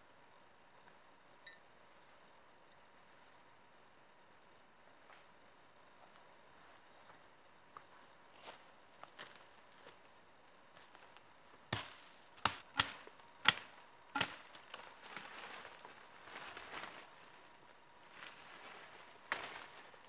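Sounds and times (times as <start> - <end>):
rustle of brush and leaves: 6.0 - 20.0
blade chopping saplings: 11.7 - 15.9.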